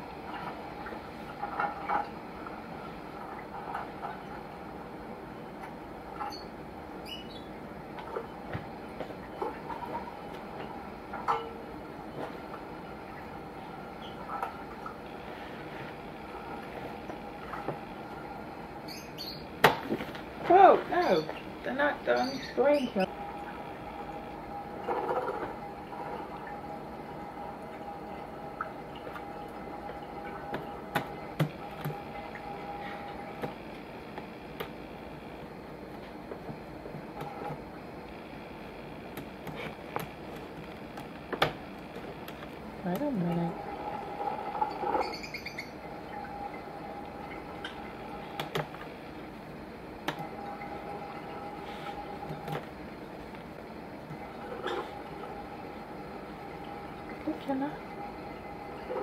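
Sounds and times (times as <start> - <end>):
birds chirping through speakers: 6.2 - 8.4, 18.8 - 19.6, 21.0 - 23.1, 44.7 - 45.9
laptop keys clicking and tapping: 48.4 - 48.7.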